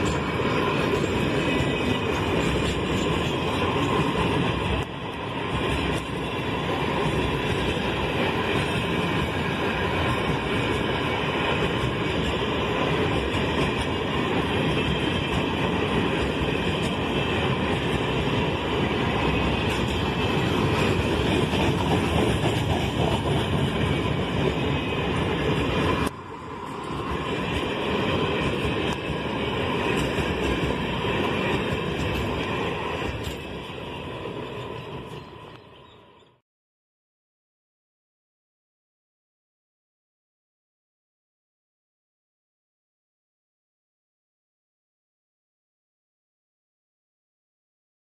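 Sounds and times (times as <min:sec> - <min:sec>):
freight train wheels rumbling on rails: 0:00.0 - 0:36.4.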